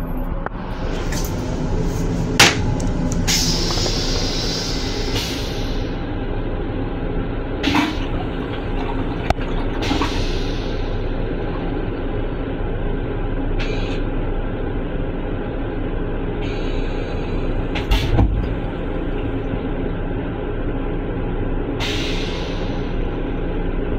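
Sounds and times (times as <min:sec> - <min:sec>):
electric train rumbling: 0:00.0 - 0:23.9
short hisses: 0:03.3 - 0:06.0.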